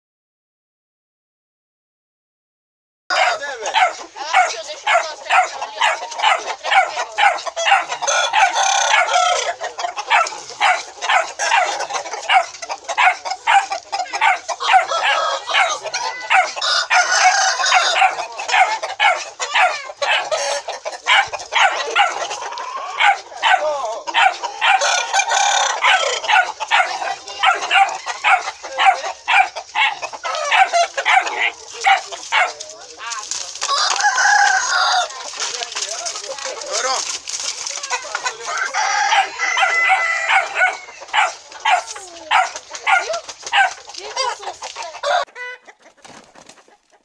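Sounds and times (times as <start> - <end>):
rooster crowing: 3.1 - 32.0, 33.6 - 35.3, 38.0 - 43.8, 44.9 - 45.6
chickens clucking: 3.1 - 47.0.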